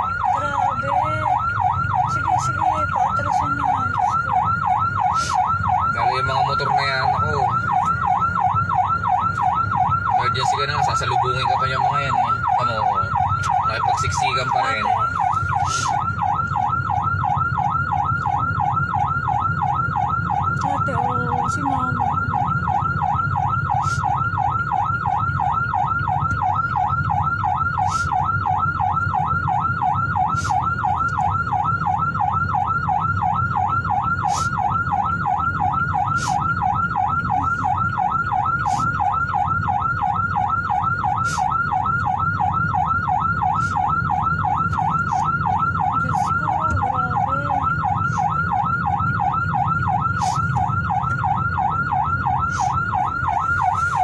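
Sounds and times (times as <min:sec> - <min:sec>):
ambulance siren yelping: 0:00.0 - 0:54.0
vehicle rumble on road: 0:00.0 - 0:54.0.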